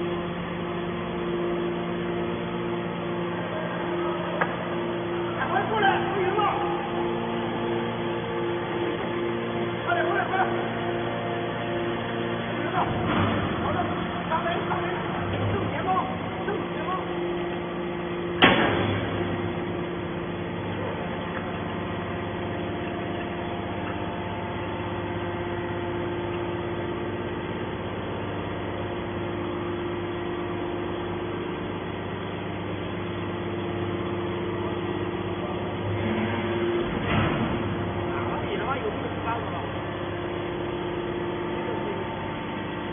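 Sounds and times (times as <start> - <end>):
hydraulic pump humming: 0.0 - 42.9
sharp bang: 18.4 - 19.2.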